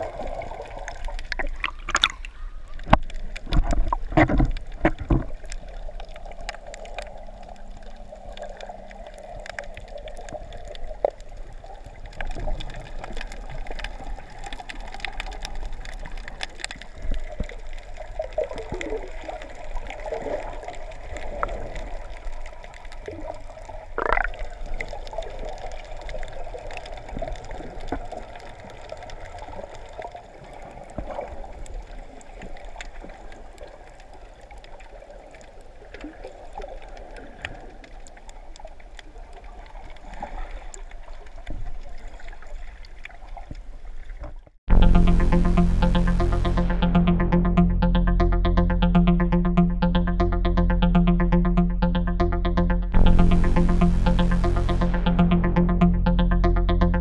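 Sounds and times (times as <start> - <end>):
underwater clicks and gurgles: 0.0 - 44.5
rising gurgle: 24.0 - 24.5.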